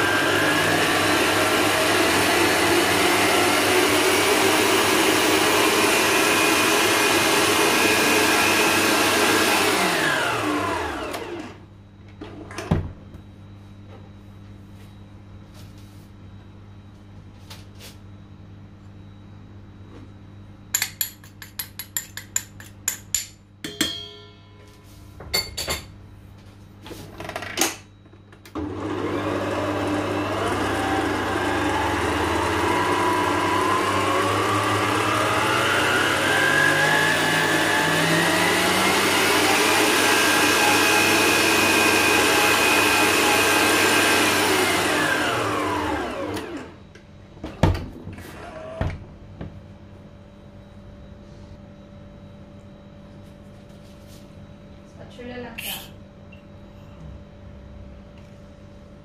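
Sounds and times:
stand mixer motor whining: 0:00.0 - 0:11.6, 0:28.5 - 0:46.8, 0:48.2 - 0:49.0
ringing knocks: 0:23.6 - 0:25.9.

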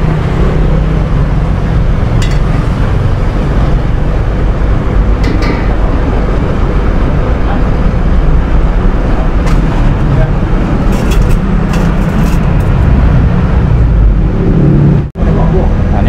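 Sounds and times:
low outdoor rumble: 0:00.0 - 0:16.0
utensil clinking against metal pot: 0:02.2 - 0:02.6.

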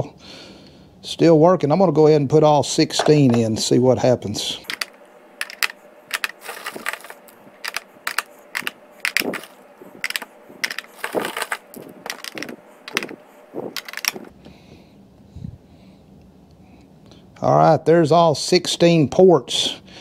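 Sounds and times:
batteries clicking into charger: 0:04.7 - 0:14.3.

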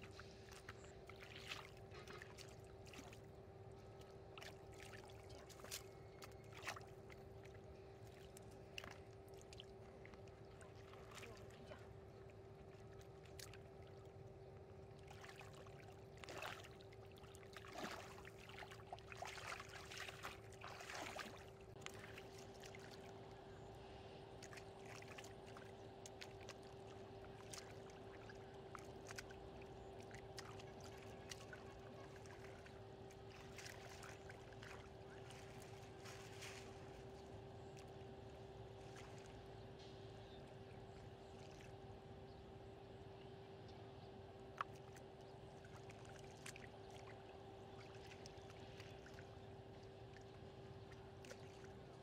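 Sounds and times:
splashing in muddy water: 0:00.0 - 0:03.4, 0:04.0 - 0:12.1, 0:15.0 - 0:23.3, 0:24.4 - 0:37.9
faint hum: 0:00.0 - 0:52.0.

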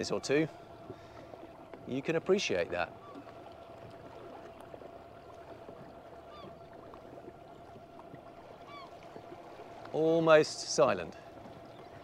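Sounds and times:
water washing around boat: 0:00.0 - 0:12.0
bird call: 0:08.6 - 0:09.0.

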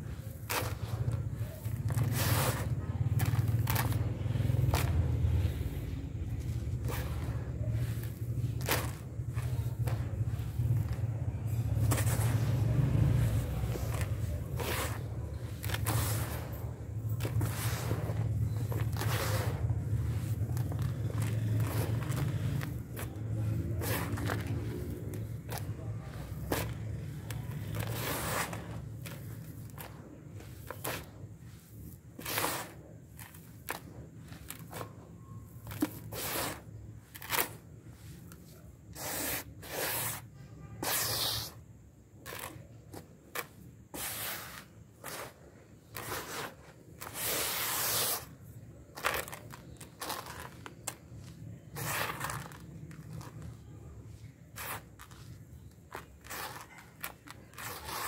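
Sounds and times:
dirt crumbled and poured: 0:00.0 - 0:40.1.

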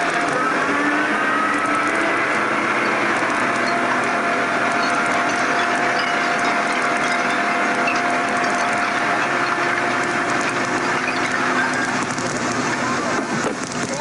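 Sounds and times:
film soundtrack crackle: 0:00.0 - 0:14.0
truck machine whine: 0:00.0 - 0:14.0.

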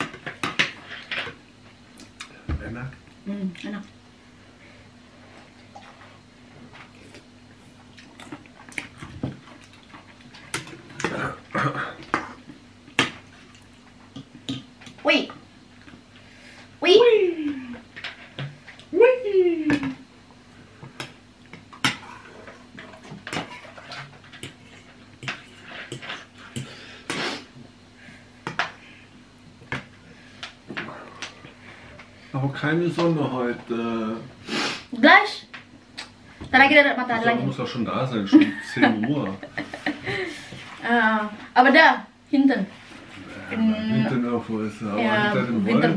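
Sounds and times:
chewing: 0:07.9 - 0:11.2.

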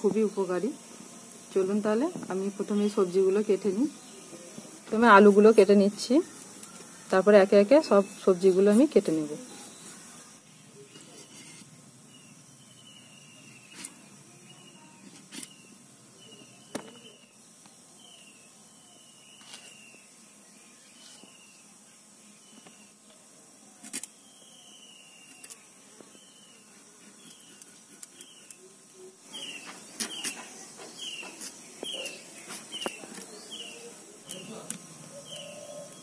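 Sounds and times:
high insect hiss: 0:00.0 - 0:36.0.

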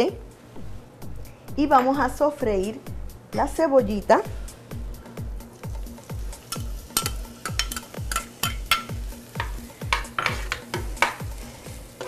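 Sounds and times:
background music with beat: 0:00.2 - 0:12.0
onion sauteing in oil: 0:05.2 - 0:12.0
spatula scraping pan: 0:09.4 - 0:12.0.

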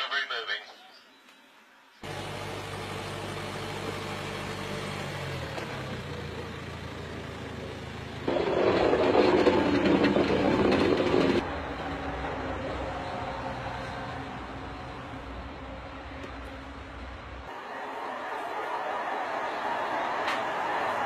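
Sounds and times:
loud rough noise: 0:08.3 - 0:11.6.

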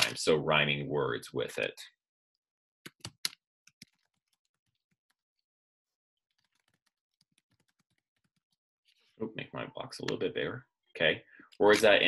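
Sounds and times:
computer keyboard typing: 0:06.4 - 0:08.6.

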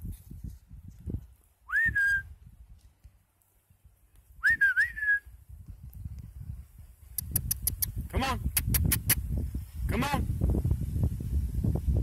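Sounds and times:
person whistling: 0:01.7 - 0:02.3, 0:04.4 - 0:05.3.

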